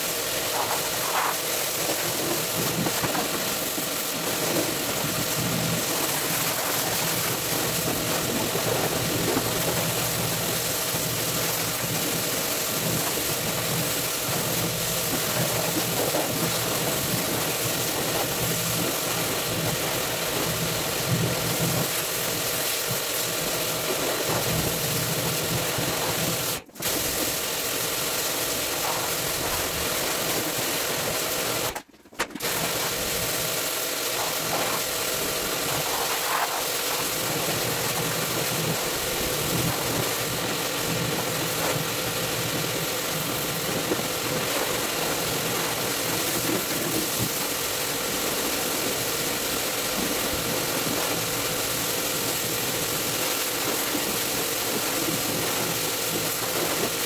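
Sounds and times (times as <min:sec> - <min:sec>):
water spray hissing: 0:00.0 - 0:31.7, 0:32.4 - 0:57.0
pressure washer pump humming: 0:00.0 - 0:57.0.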